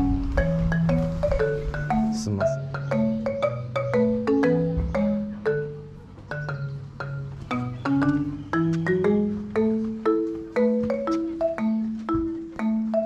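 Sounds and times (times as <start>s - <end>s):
light tune of struck notes: 0.0s - 13.0s.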